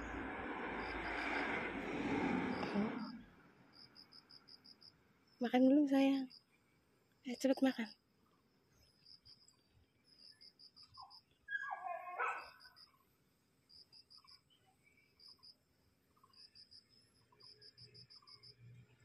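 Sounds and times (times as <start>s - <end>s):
insects chirping: 0.0s - 1.6s, 2.4s - 19.0s
animal call: 11.0s - 12.8s.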